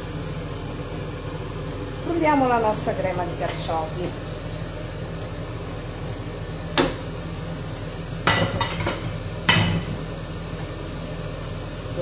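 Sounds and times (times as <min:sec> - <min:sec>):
kitchenware clanking on saucepan: 0:08.2 - 0:10.0.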